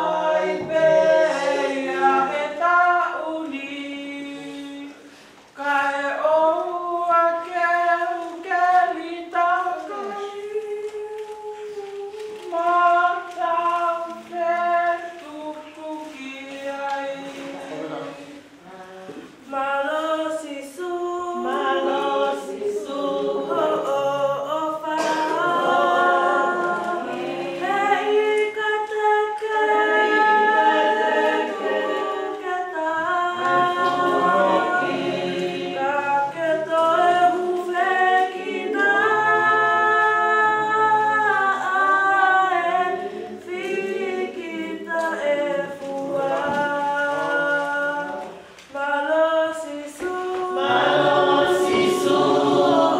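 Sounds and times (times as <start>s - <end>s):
choir singing: 0.0s - 4.6s, 19.8s - 48.4s, 49.0s - 52.9s.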